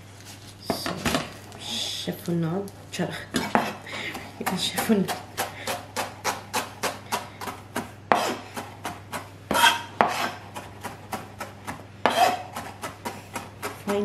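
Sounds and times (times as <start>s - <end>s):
knife chopping on plastic board: 3.4s - 14.0s.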